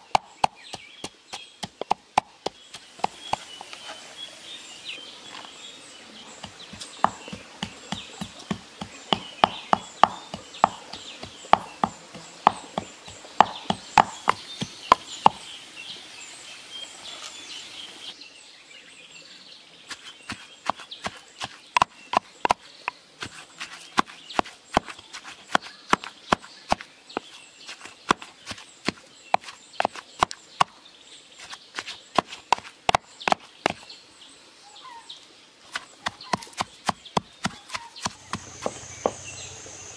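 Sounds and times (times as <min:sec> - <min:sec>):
pestle pounding in clay mortar: 0:00.0 - 0:03.6, 0:06.4 - 0:15.4, 0:19.9 - 0:30.7, 0:31.4 - 0:33.8, 0:35.7 - 0:39.6
birds chirping: 0:00.0 - 0:39.9.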